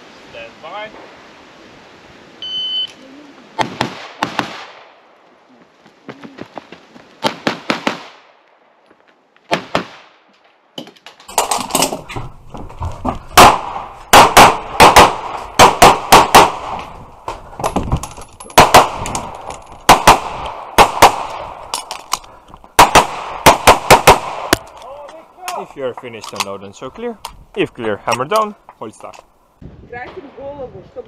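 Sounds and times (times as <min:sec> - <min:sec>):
pistol gunfire: 0:13.4 - 0:16.8, 0:18.6 - 0:19.3, 0:19.9 - 0:21.6, 0:22.8 - 0:24.7.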